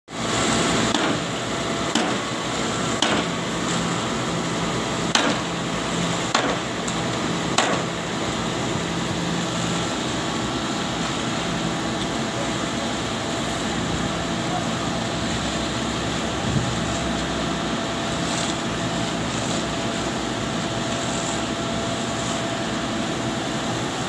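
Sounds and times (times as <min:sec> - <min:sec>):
concrete mixer truck humming: 0:00.1 - 0:24.0
sharp knocks: 0:05.1 - 0:05.4, 0:07.6 - 0:07.8.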